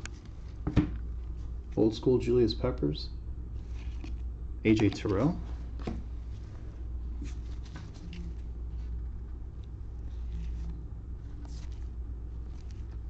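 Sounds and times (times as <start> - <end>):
steady low hum: 0.0 - 13.0
trading cards rustling: 7.2 - 9.0, 10.0 - 13.0.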